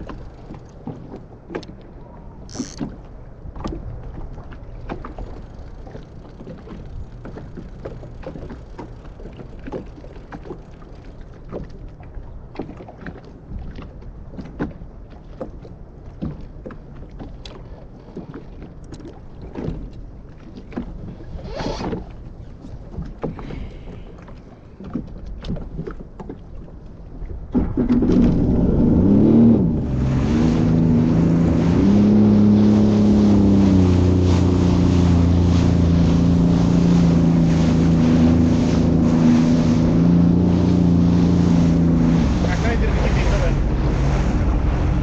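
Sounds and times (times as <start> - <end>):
waves slapping against boat hull: 0.0 - 45.0
wind rumble on microphone: 18.9 - 45.0.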